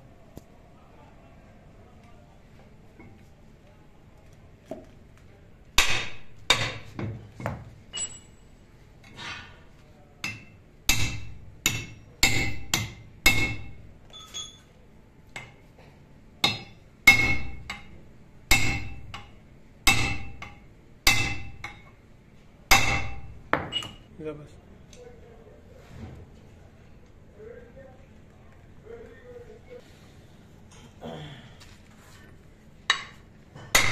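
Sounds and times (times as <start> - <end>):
hammer striking metal punch: 5.8 - 7.1, 10.2 - 14.6, 16.4 - 21.9, 22.7 - 24.0, 32.9 - 33.9.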